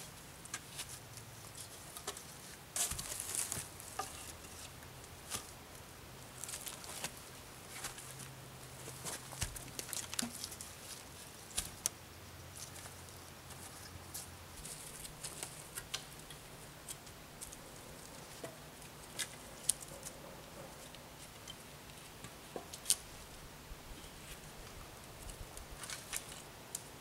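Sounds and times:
dry sticks snapping and crackling: 0:08.9 - 0:12.0, 0:14.6 - 0:20.2, 0:22.2 - 0:23.1, 0:25.2 - 0:26.8.

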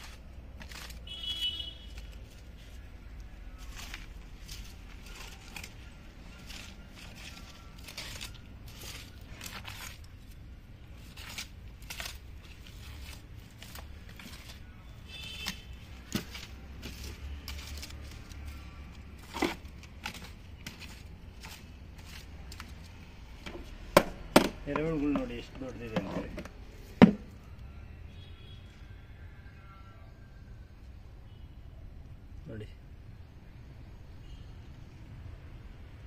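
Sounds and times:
stick scraping through soil: 0:00.0 - 0:23.0.

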